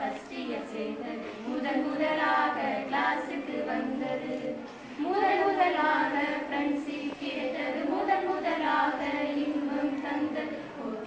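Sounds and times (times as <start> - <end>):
women singing unaccompanied: 0.0 - 11.0.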